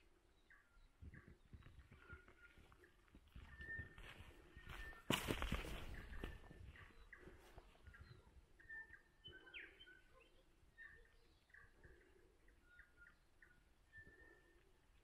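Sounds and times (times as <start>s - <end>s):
faint bird chirps: 0.0s - 15.0s.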